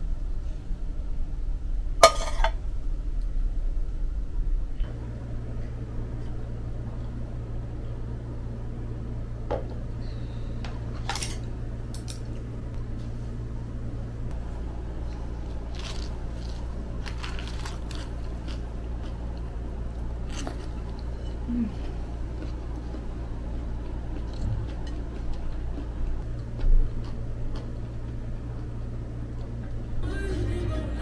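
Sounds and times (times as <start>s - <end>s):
low room hum: 0.0s - 31.0s
fork clinking on dishes: 2.0s - 2.5s.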